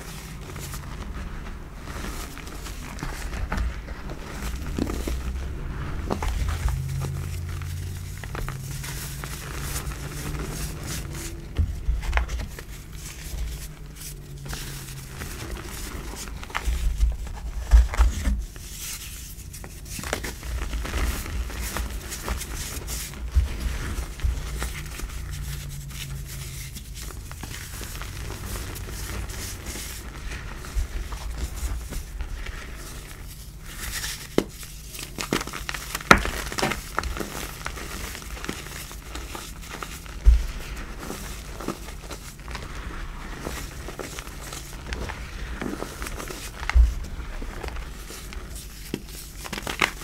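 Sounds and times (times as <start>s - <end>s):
hands crushing chalk: 0.0s - 50.0s.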